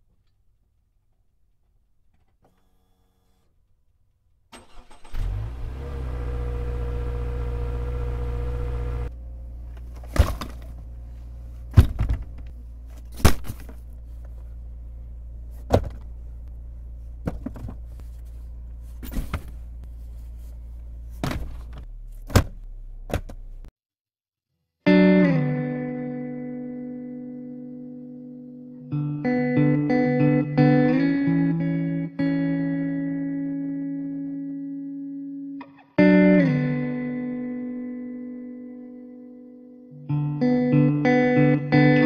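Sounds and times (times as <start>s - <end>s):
car engine starting and idling: 4.5s - 11.8s, 13.9s - 23.7s.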